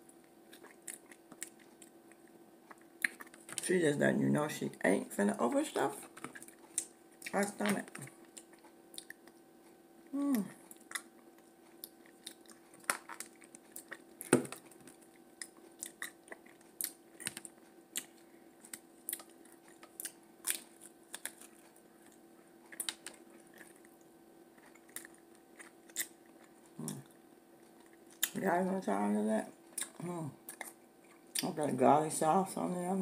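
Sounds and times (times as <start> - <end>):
faint hum: 0.0 - 33.0
food crunching: 0.2 - 3.7, 6.0 - 9.5, 10.1 - 28.5, 29.6 - 31.6
chewing and mouth smacks: 0.5 - 3.6, 6.2 - 9.4, 10.6 - 28.4, 29.7 - 31.5
person humming mm: 10.1 - 10.6.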